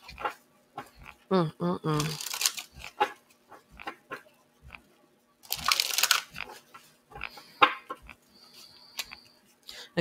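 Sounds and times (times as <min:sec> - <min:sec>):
cards being shuffled: 0:02.0 - 0:04.8, 0:05.4 - 0:08.2.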